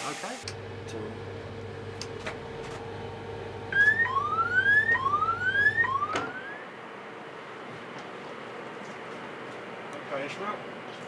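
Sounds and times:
low hum: 0.4 - 6.7
electronic rising whoop tone: 3.7 - 6.7.

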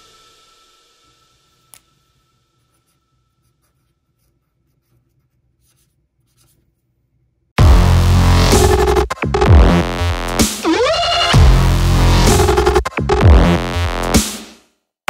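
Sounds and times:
music: 0.0 - 3.1, 7.6 - 14.8.

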